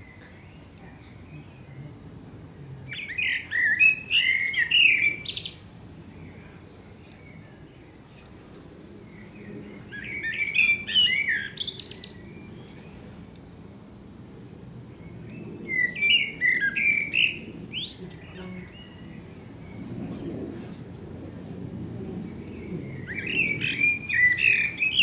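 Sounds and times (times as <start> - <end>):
blackbird singing: 2.9 - 6.4, 9.1 - 12.9, 15.0 - 19.9, 22.4 - 25.0.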